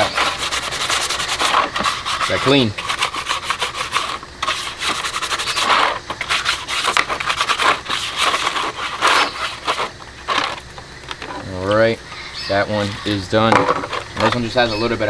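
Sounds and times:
brush scrubbing wet terracotta: 0:00.0 - 0:10.6.

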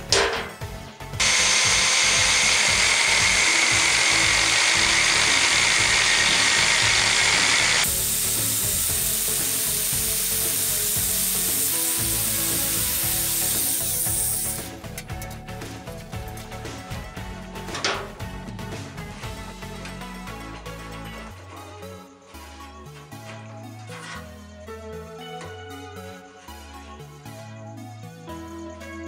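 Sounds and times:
angle grinder cutting steel pipe: 0:01.2 - 0:15.1, 0:20.3 - 0:24.4.

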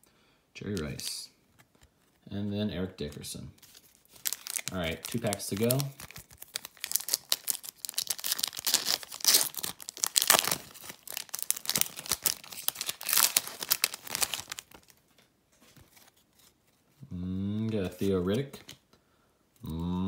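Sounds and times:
wrapper tearing and crinkling: 0:03.6 - 0:15.0.

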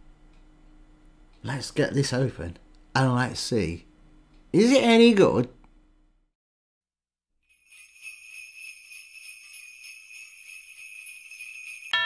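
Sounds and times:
sleigh bells jingling: 0:07.4 - 0:12.0.

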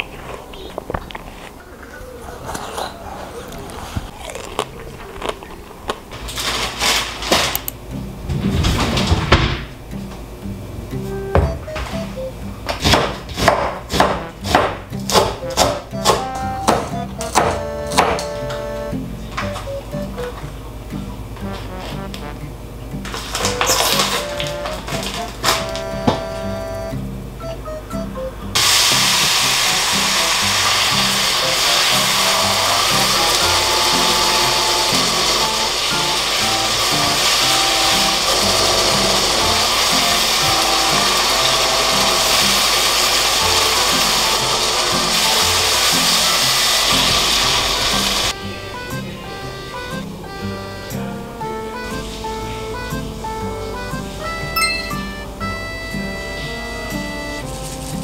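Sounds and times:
rustling: 0:00.0 - 0:07.6, 0:57.4 - 0:58.0
beef sizzling in a wok: 0:28.6 - 0:48.4.

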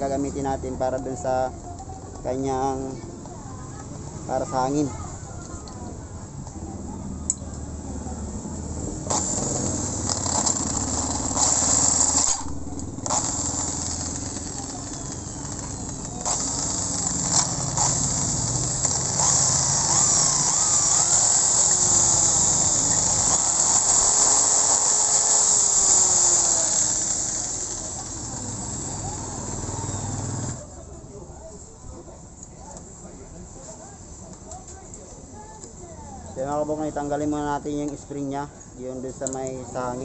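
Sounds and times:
drill bit squealing in metal: 0:09.1 - 0:27.4
electric drill boring into metal: 0:09.1 - 0:30.6.

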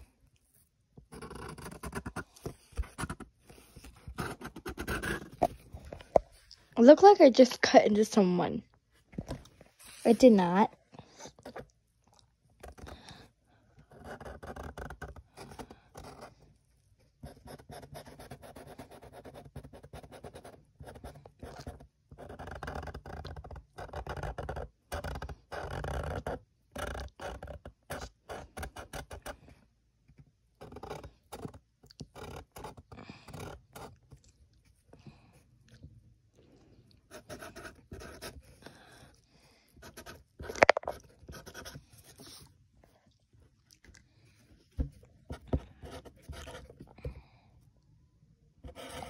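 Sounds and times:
marker scratching on paper: 0:01.1 - 0:05.6, 0:13.9 - 0:16.3, 0:17.2 - 0:23.2, 0:37.1 - 0:39.0, 0:39.8 - 0:42.4, 0:48.7 - 0:49.0.

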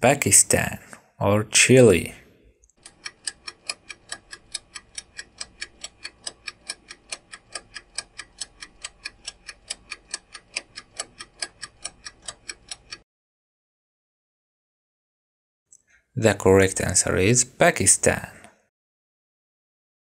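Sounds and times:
clock-like ticking: 0:02.8 - 0:13.0.

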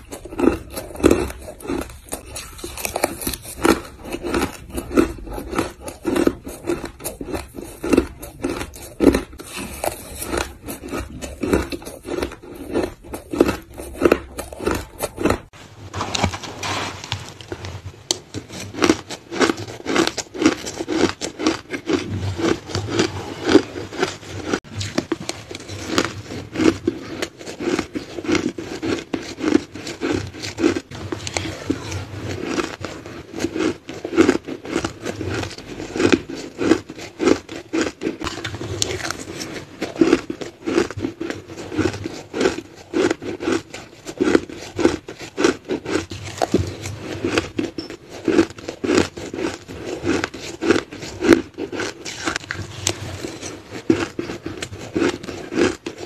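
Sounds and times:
chewing crushed ice: 0:00.0 - 0:56.0.

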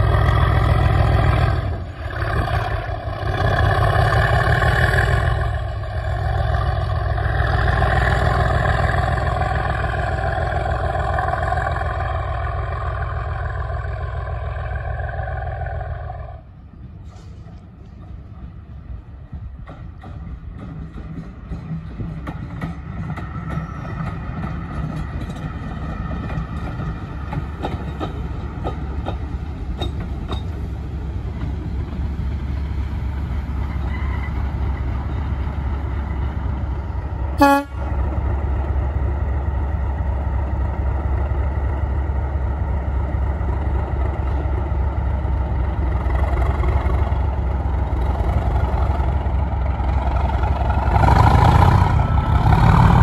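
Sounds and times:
diesel locomotive passing: 0:00.0 - 0:53.0
locomotive horn toot: 0:37.4 - 0:37.9.

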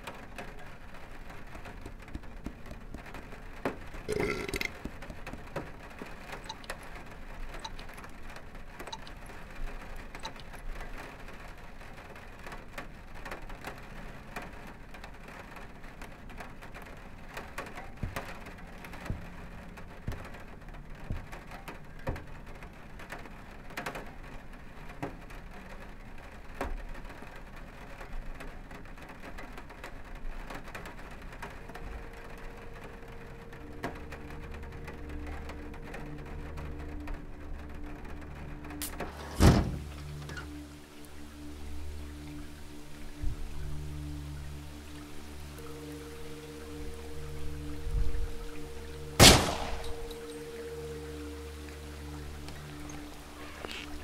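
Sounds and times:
rain on a window: 0:00.0 - 0:54.0
drips and taps: 0:01.8 - 0:06.8, 0:08.8 - 0:09.4
low held tones: 0:31.5 - 0:54.0.

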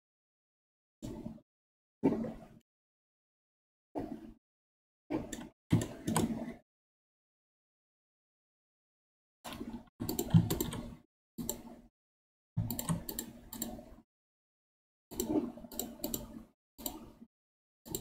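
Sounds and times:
keyboard and mouse clicking: 0:05.3 - 0:06.4, 0:09.5 - 0:11.7, 0:12.6 - 0:13.8, 0:15.1 - 0:17.1.

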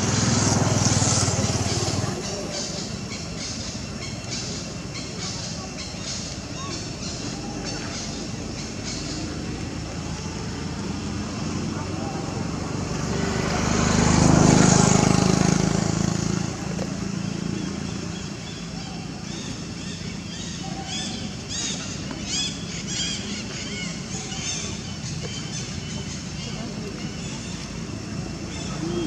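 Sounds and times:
motor vehicle passing: 0:00.0 - 0:29.0.

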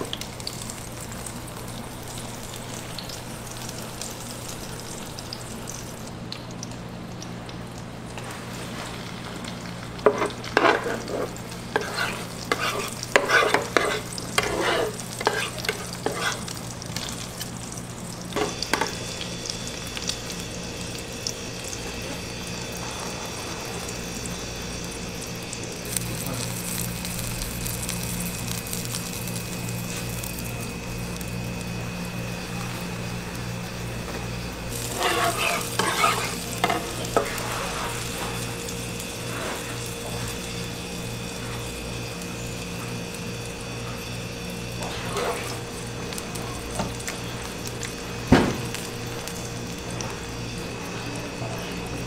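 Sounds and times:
egg sizzling in a pan: 0:00.0 - 0:52.0
steady low hum: 0:00.0 - 0:52.0
spatulas scraping a pan: 0:10.0 - 0:16.5, 0:34.7 - 0:38.4, 0:44.8 - 0:45.6.

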